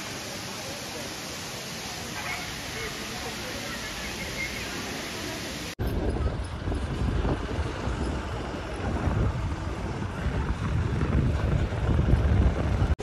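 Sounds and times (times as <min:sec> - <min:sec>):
faint hiss: 0:00.0 - 0:05.8
wind buffeting microphone: 0:05.8 - 0:13.0.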